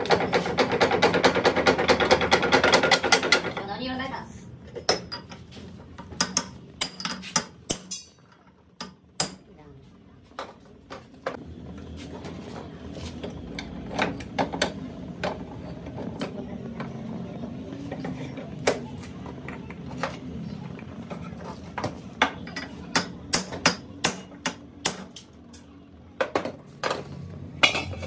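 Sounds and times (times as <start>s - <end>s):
hammer striking metal chisel: 22.5s - 25.3s.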